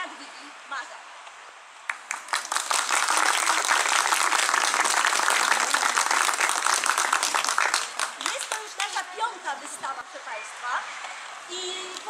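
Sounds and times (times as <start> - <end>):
people applauding: 1.9 - 9.1.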